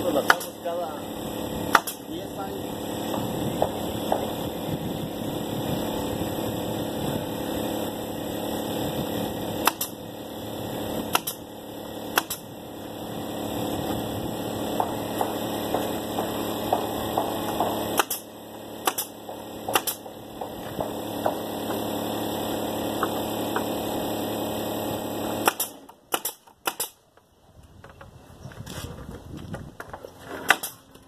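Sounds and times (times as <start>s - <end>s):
nail gun firing into wood: 0.0s - 0.6s, 1.6s - 2.1s, 3.0s - 4.4s, 9.4s - 10.0s, 10.9s - 12.5s, 14.6s - 22.0s, 25.1s - 27.1s, 30.4s - 30.9s
air compressor running: 0.0s - 27.0s.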